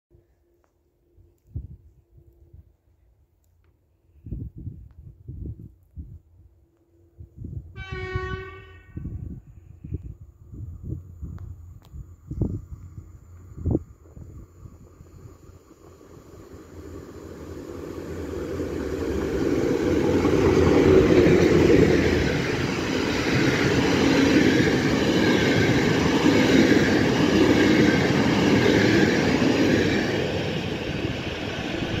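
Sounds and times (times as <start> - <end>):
freight train passing: 10.4 - 32.0.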